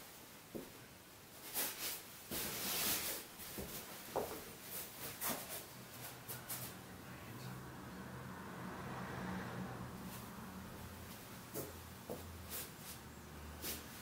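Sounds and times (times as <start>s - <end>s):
feet scuffing on foam mats: 1.4s - 6.7s, 11.1s - 14.0s.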